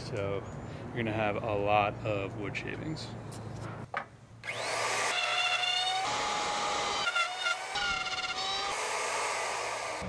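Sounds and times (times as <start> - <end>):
wood router whining: 4.4 - 10.0.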